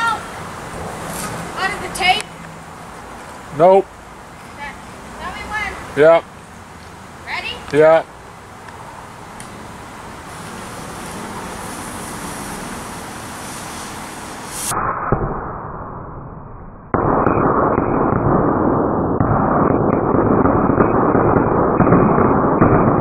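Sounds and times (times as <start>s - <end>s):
firework rushing noise: 9.1s - 23.0s
firework fuse hissing: 9.2s - 14.8s.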